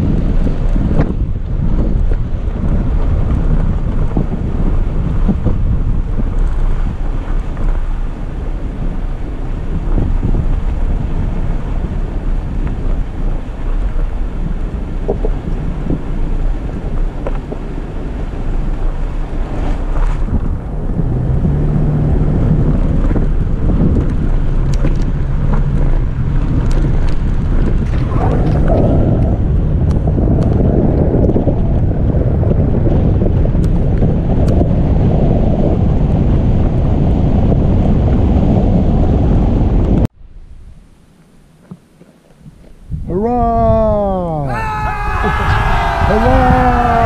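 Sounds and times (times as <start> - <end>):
gravel ticks and rattles: 0.0 - 20.6, 22.4 - 34.8
tyres rumbling on gravel road: 0.0 - 38.6, 44.7 - 47.0
engine hum: 0.0 - 39.2, 44.6 - 47.0
wind buffeting microphone: 0.0 - 40.9, 42.1 - 47.0.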